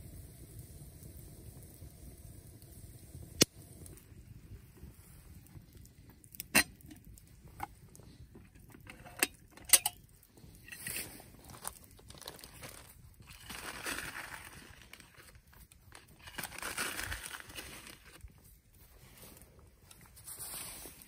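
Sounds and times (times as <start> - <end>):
wood fire crackling: 0.0 - 21.0
metal kettle lid clinking: 6.4 - 7.0, 8.8 - 10.0.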